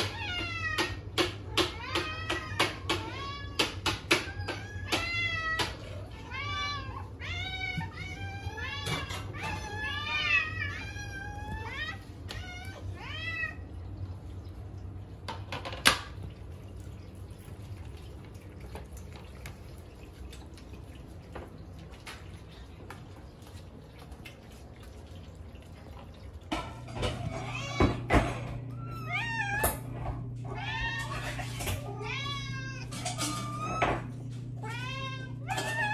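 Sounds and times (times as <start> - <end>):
cats meowing: 0.0 - 14.0, 26.5 - 35.9
low steady hum: 4.2 - 35.9.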